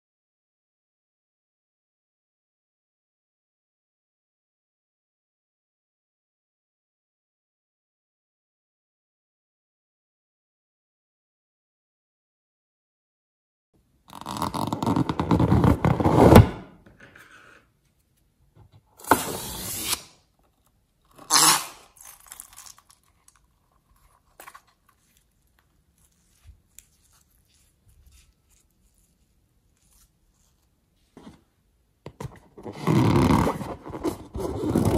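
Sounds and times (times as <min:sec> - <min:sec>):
balloon rubbing and scraping: 0:14.1 - 0:16.6, 0:21.2 - 0:21.8, 0:32.5 - 0:34.9
small wet slime sounds: 0:21.9 - 0:30.8.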